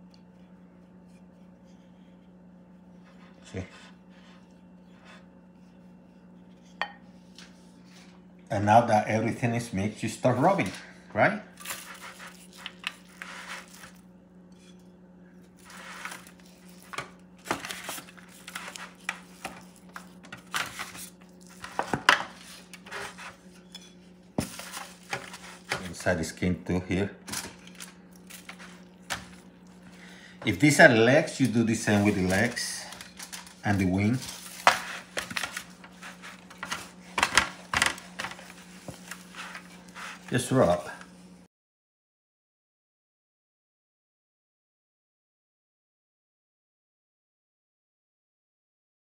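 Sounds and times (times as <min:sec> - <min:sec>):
faint steady hum: 0:00.0 - 0:41.5
foil pan crinkling and clicking: 0:11.6 - 0:14.0, 0:15.6 - 0:23.6, 0:24.4 - 0:26.3, 0:27.2 - 0:29.8, 0:31.2 - 0:40.8
hands rubbing wet meat: 0:38.3 - 0:40.8.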